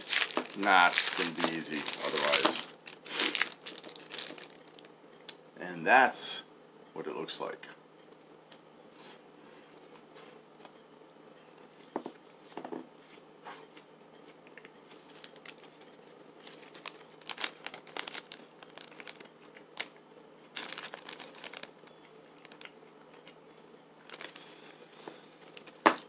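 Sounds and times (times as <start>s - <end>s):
plastic wrapper crinkling: 0.0s - 4.9s, 15.0s - 21.8s, 22.4s - 22.7s, 24.0s - 24.5s, 25.3s - 26.0s.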